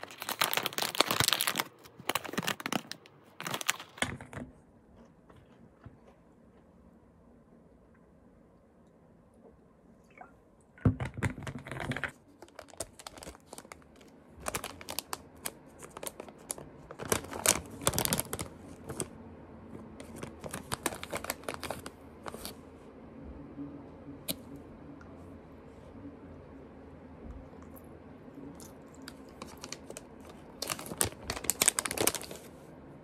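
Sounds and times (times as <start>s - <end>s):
handling clicks and crinkling: 0.0s - 6.2s, 11.0s - 19.1s, 19.8s - 22.6s, 29.0s - 32.5s.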